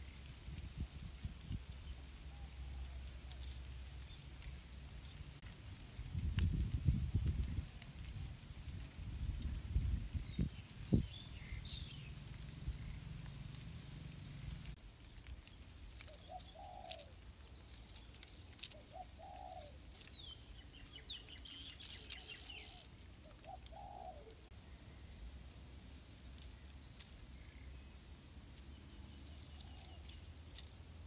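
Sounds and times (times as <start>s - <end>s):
small birds chirping: 9.4s - 25.1s
bird cooing: 16.2s - 17.1s, 18.8s - 19.8s, 22.2s - 24.4s.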